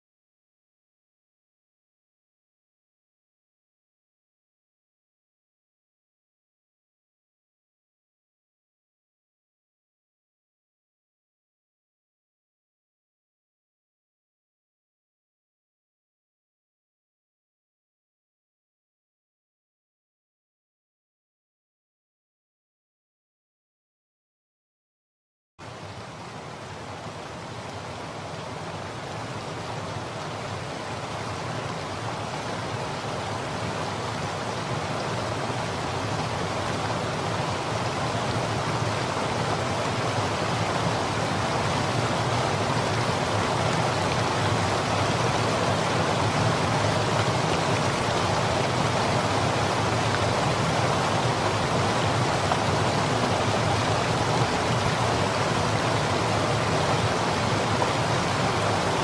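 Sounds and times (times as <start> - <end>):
river water rushing over rocks: 25.6 - 59.0.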